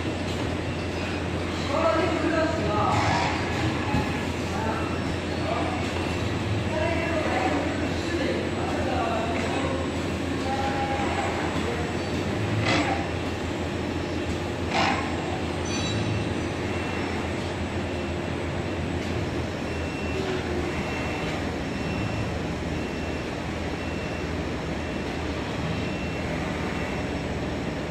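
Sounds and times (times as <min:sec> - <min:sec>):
printing machine humming: 0:00.0 - 0:27.9.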